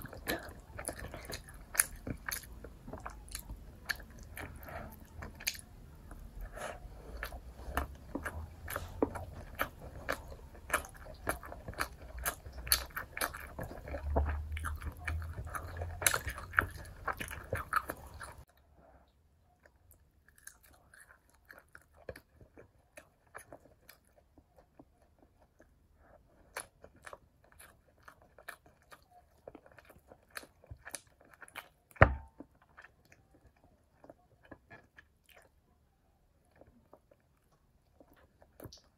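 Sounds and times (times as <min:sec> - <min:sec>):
chewing and crunching: 0:00.0 - 0:18.7, 0:19.5 - 0:38.9.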